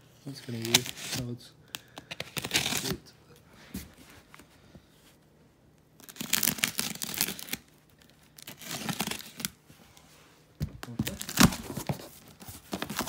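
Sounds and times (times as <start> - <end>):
tape and cardboard tearing: 2.2 - 3.0, 6.0 - 7.7, 8.4 - 9.6, 11.0 - 13.0.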